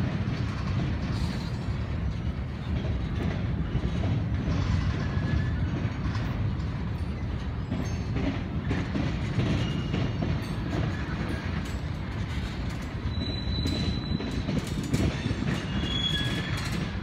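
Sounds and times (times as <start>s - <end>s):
freight train cars rumbling: 0.0s - 17.0s
high wheel squeal: 13.0s - 17.0s.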